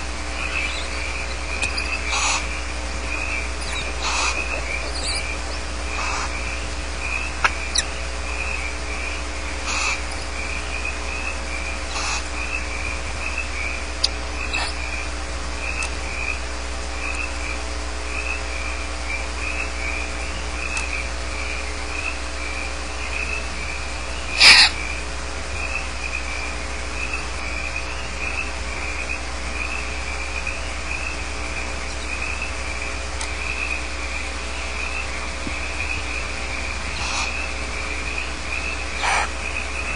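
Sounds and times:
owls hissing: 0:00.0 - 0:17.4, 0:23.0 - 0:25.0, 0:29.7 - 0:39.9
low hum: 0:00.0 - 0:39.9
pulsing chirping chorus: 0:00.0 - 0:39.9.

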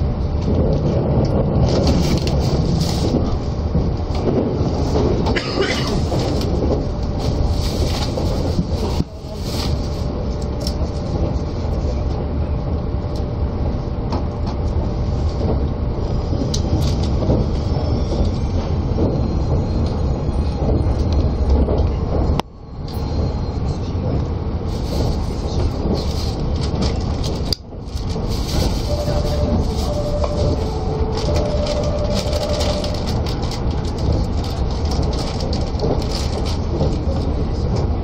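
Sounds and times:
train wheels rumbling on rail: 0:00.0 - 0:38.0.

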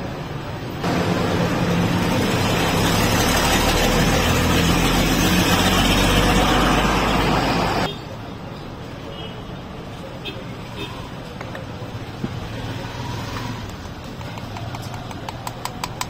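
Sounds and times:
vehicle engine running: 0:00.8 - 0:07.9.

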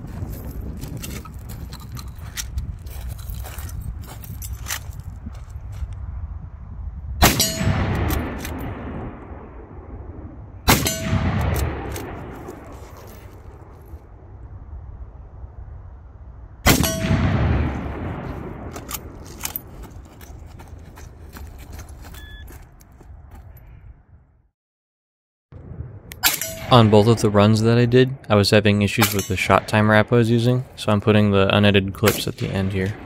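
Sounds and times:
rifle handling clicks and rattles: 0:00.4 - 0:05.2, 0:11.4 - 0:13.4, 0:18.2 - 0:22.3
rifle shots echoing: 0:07.2 - 0:09.6, 0:10.6 - 0:13.7, 0:16.7 - 0:20.2, 0:26.1 - 0:27.9, 0:32.0 - 0:33.0.

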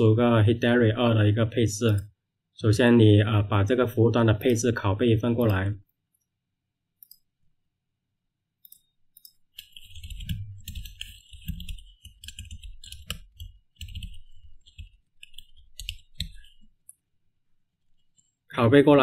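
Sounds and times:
computer keyboard typing: 0:04.3 - 0:05.7, 0:08.6 - 0:17.1.

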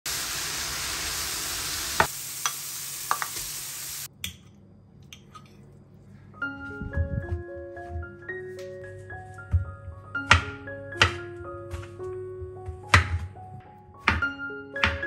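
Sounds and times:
mushrooms sizzling in a pan: 0:00.1 - 0:04.1
wooden spoon knocking on pan: 0:10.2 - 0:11.2, 0:12.6 - 0:13.3.

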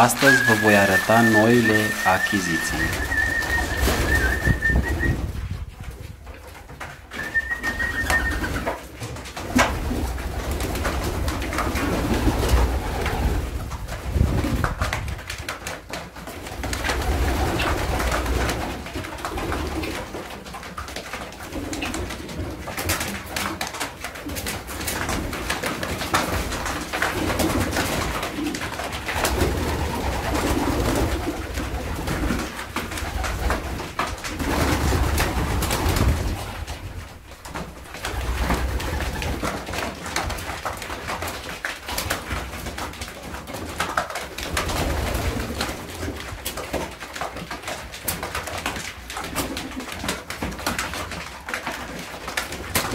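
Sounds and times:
pigeons cooing: 0:00.0 - 0:05.3, 0:07.1 - 0:08.7, 0:27.3 - 0:36.2
beaks pecking grain from wooden trough: 0:00.0 - 0:52.9.

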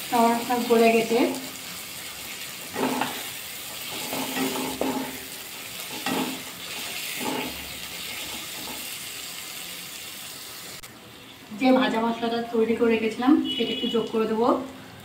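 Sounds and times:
food sizzling: 0:00.0 - 0:15.0
wooden spatula scraping pan: 0:02.7 - 0:05.2, 0:05.9 - 0:08.9.

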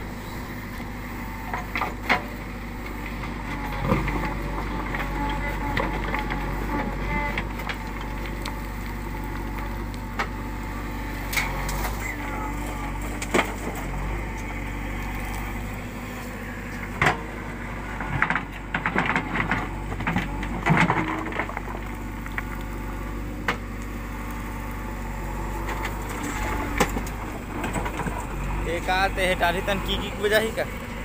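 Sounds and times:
diesel engine running under load: 0:00.0 - 0:31.0
rock cracking and scraping: 0:17.9 - 0:24.8, 0:25.4 - 0:28.8.

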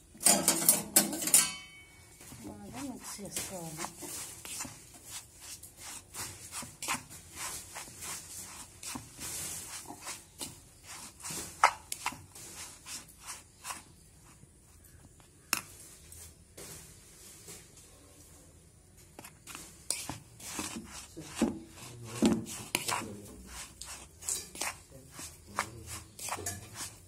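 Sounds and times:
spoon scraping plastic bowl: 0:02.2 - 0:14.4, 0:19.1 - 0:27.0.

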